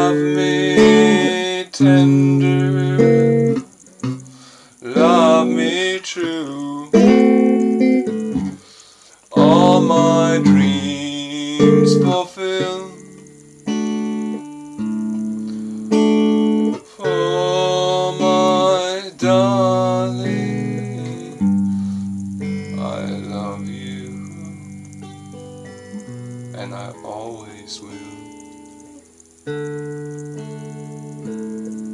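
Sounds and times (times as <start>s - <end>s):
man singing: 0.0s - 3.6s, 4.8s - 7.4s, 9.3s - 13.2s, 16.7s - 21.6s, 22.7s - 24.8s, 26.6s - 28.3s
guitar chords strummed: 0.0s - 31.9s.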